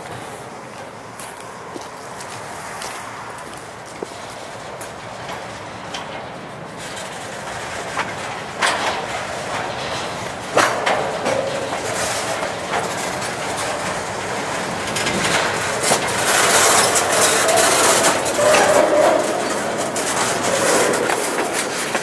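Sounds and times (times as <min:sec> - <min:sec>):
train wheels clicking on rail joints: 0:00.0 - 0:22.0
faint wheel squeal: 0:16.5 - 0:21.4.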